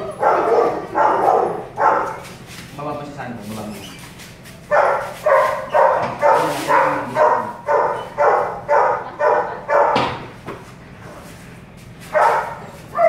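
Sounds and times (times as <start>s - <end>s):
dog yelping barks: 0.1s - 2.3s, 4.7s - 10.2s, 12.1s - 13.0s.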